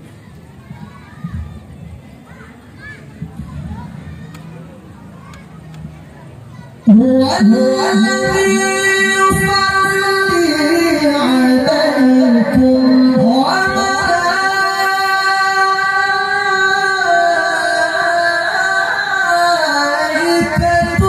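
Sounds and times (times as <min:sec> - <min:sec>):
man reciting melodically: 0:06.9 - 0:21.0.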